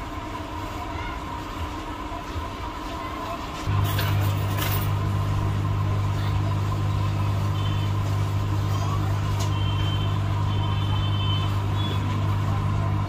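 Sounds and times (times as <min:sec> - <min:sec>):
hot air blower humming: 0:03.6 - 0:13.0.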